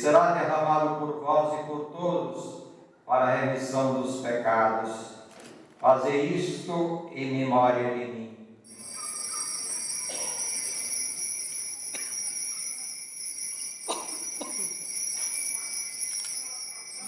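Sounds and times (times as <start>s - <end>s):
altar bells jingling: 8.7s - 17.0s.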